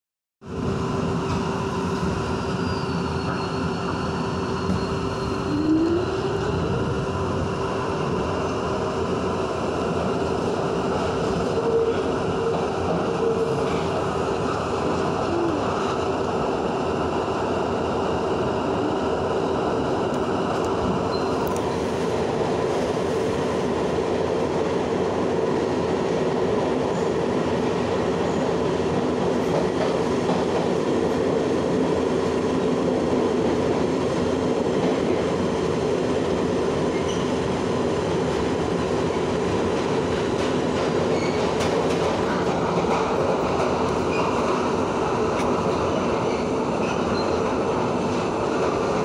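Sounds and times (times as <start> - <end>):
subway train wheels rumbling on rail: 0.4 - 49.0.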